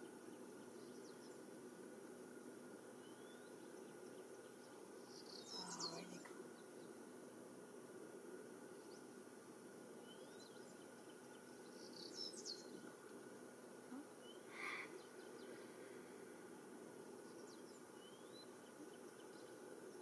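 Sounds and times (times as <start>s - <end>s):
distant bird chirps and whistles: 3.0s - 7.0s, 10.0s - 12.8s, 14.2s - 15.7s, 17.1s - 20.0s.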